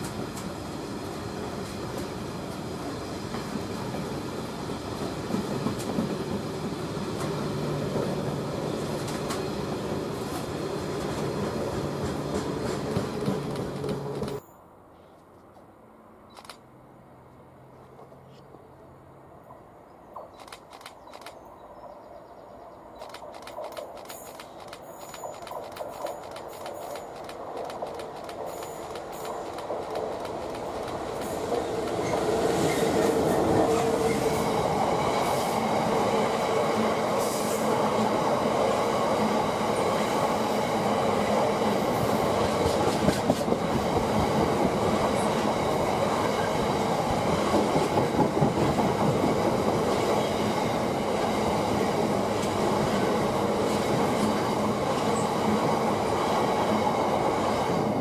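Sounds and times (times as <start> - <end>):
freight train passing: 0.0 - 58.0
wheels clattering over rail joints: 23.0 - 32.8.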